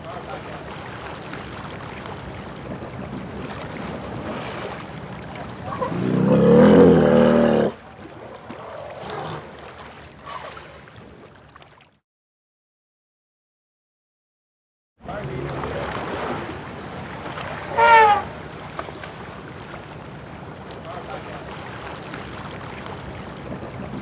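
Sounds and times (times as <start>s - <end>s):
wind: 0.0s - 12.0s, 15.0s - 24.0s
elephant rumbling call: 5.6s - 7.8s, 17.6s - 18.3s.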